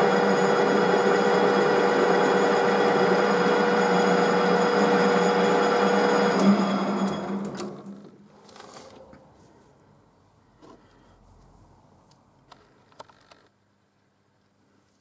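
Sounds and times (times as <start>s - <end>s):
metal lathe running: 0.0s - 8.0s
lathe winding down: 0.0s - 8.1s.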